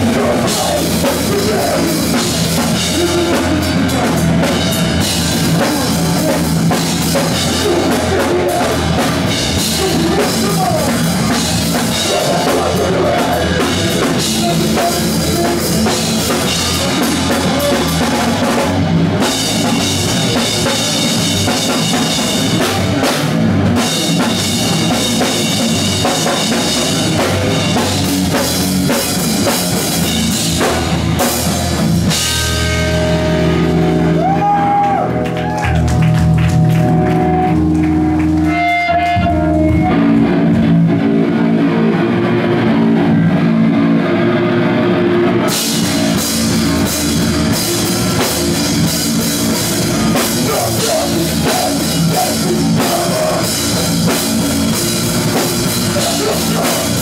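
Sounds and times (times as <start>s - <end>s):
live rock band playing: 0.0s - 57.0s
ringing electric guitar chords: 0.0s - 57.0s.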